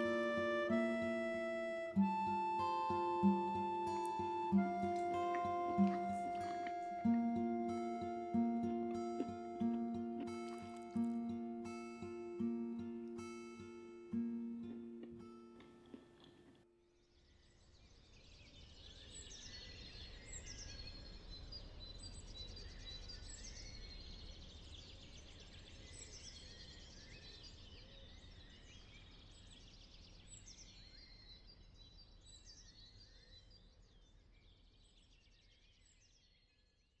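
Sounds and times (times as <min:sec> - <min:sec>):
small birds chirping: 0:00.0 - 0:13.2.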